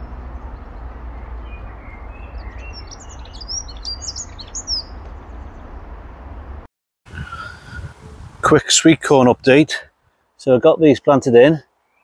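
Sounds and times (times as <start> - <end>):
robin singing: 0.0 - 5.8, 11.7 - 12.0.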